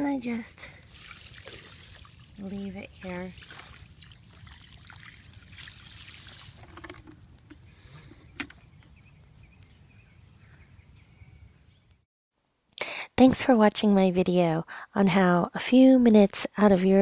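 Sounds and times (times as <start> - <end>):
water splashing on ground: 0.8 - 7.0.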